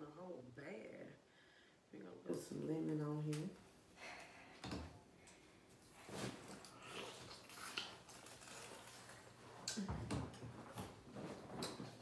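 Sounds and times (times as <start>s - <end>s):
person chewing and sucking: 6.5s - 9.8s.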